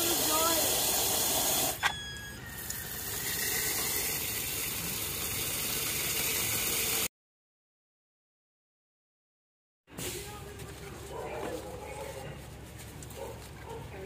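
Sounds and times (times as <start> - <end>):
hose spraying water: 0.0 - 1.8, 2.7 - 7.1.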